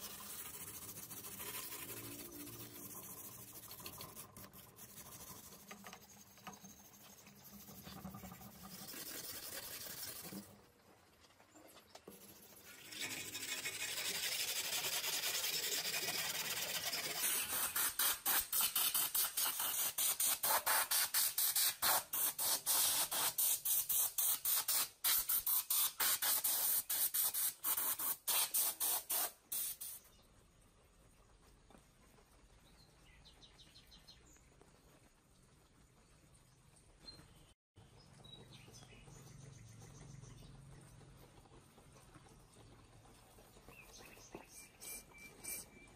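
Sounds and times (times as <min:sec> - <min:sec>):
aerosol spray can hissing: 0:17.2 - 0:30.0.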